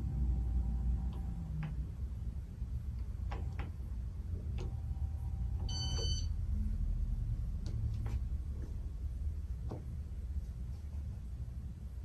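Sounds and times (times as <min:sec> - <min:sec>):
ceiling fan humming: 0:00.0 - 0:12.0
short high beep: 0:05.7 - 0:06.3.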